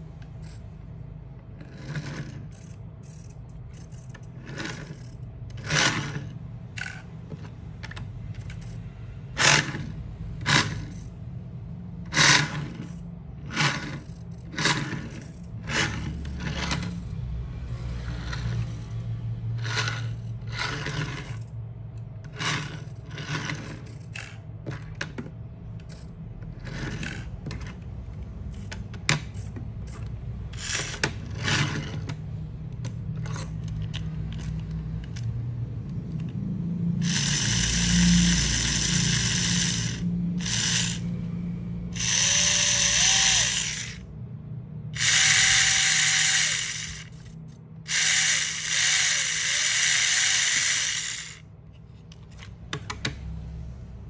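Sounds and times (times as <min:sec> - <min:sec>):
clicks and scrapes: 0:01.5 - 0:08.8, 0:12.1 - 0:36.4, 0:45.0 - 0:53.2
small electric motor whirring: 0:01.6 - 0:07.0, 0:12.1 - 0:21.6, 0:22.3 - 0:24.4, 0:28.5 - 0:32.1, 0:37.0 - 0:44.1, 0:45.0 - 0:51.5.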